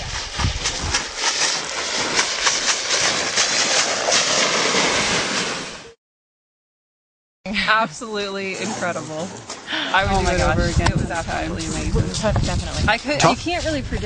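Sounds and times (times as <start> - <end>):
wind buffeting microphone: 0.0 - 3.9, 9.7 - 14.0
board scraping down gravel slope: 0.0 - 6.0.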